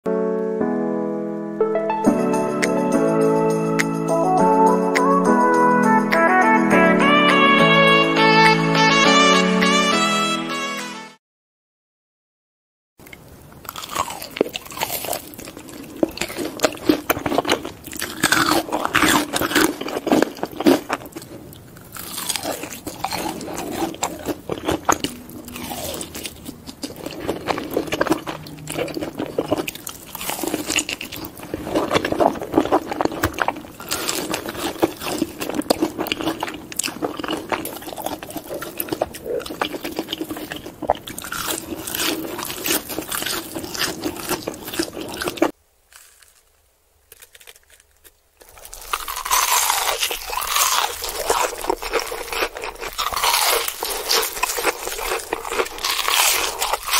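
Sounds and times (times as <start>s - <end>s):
crunching and chewing: 13.0s - 56.9s.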